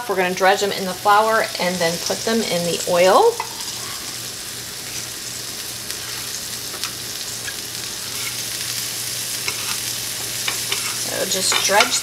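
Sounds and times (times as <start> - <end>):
steaks sizzling in oil: 0.1 - 12.0.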